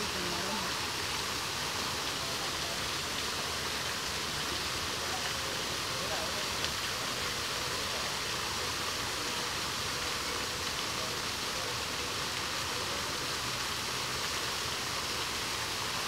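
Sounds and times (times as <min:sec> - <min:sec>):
running water hissing: 0:00.0 - 0:16.0.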